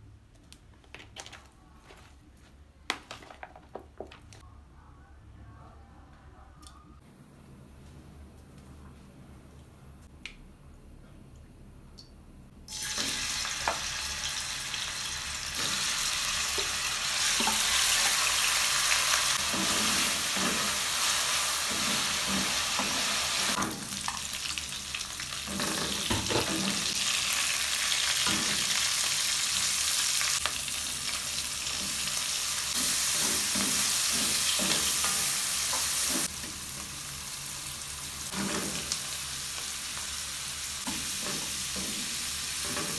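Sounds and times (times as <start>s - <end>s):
food sizzling in hot oil: 12.7s - 42.9s.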